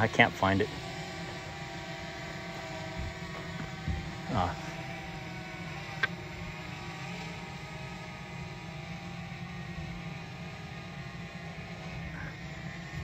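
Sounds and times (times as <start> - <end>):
drone propellers humming: 0.0 - 13.0.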